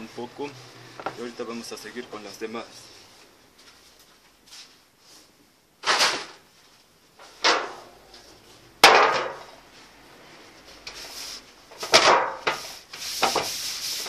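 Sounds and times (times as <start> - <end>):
metal baking trays clattering: 5.8 - 6.4, 7.2 - 7.9, 8.8 - 9.5, 11.8 - 12.6.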